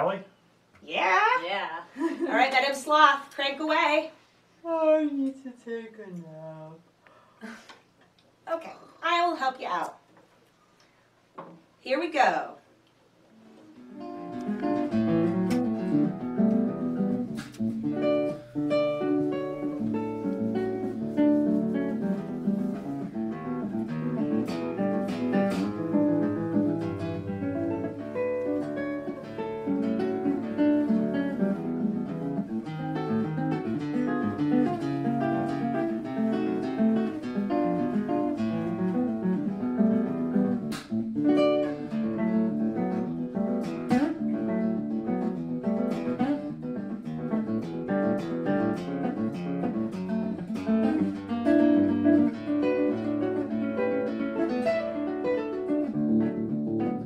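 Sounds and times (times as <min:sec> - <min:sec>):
acoustic guitar music: 0:13.3 - 0:57.0.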